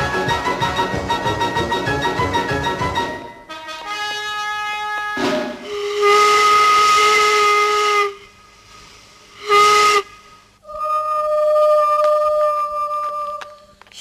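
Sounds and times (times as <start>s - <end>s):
steam locomotive whistle: 0.0s - 8.4s, 9.4s - 10.2s.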